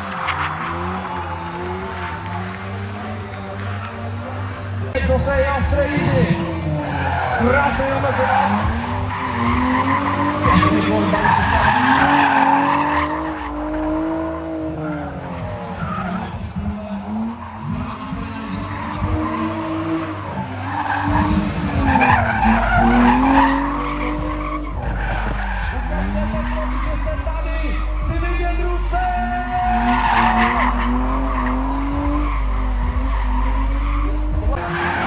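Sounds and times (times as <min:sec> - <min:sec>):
car engine revving hard: 0:00.0 - 0:04.9, 0:06.0 - 0:35.0
tyres squealing: 0:06.7 - 0:14.2, 0:14.8 - 0:35.0.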